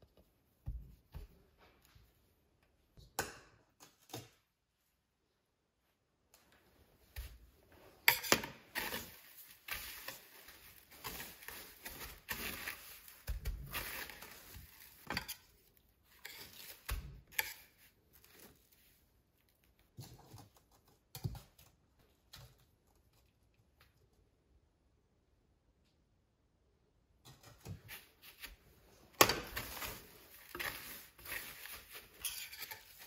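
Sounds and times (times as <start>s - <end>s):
breadcrumbs crackling and rustling: 7.2s - 23.2s, 27.9s - 33.0s.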